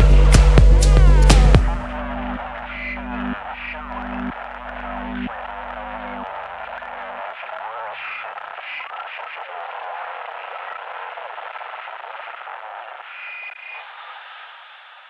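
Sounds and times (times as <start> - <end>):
tinny electronic noise wash: 0.0 - 8.8.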